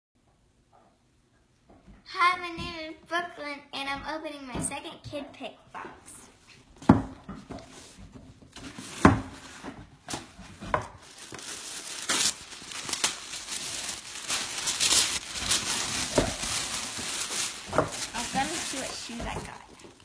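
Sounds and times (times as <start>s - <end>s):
tissue paper crinkling: 10.2s - 20.0s.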